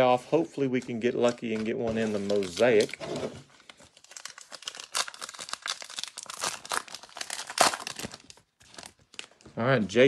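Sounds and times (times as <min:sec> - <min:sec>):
foil wrapper crinkling: 0:03.7 - 0:09.4
foil wrapper tearing: 0:04.0 - 0:08.9.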